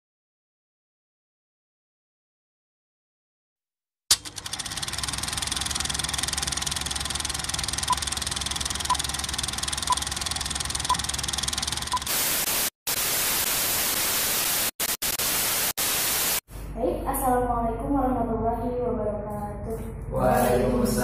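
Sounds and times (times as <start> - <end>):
film projector clatter: 4.1 - 12.1
static hiss: 12.1 - 16.4.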